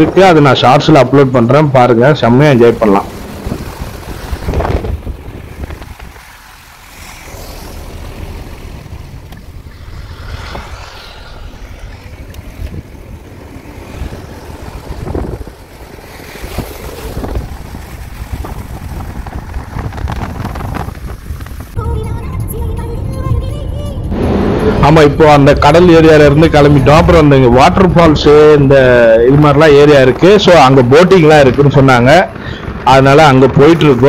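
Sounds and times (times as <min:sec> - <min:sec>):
sea surf: 0:00.0 - 0:21.9
wind buffeting microphone: 0:00.0 - 0:34.0.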